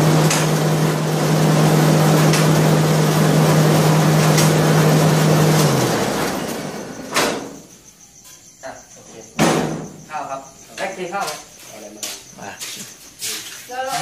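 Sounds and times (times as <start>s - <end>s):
rice huller humming and rushing: 0.0s - 7.6s.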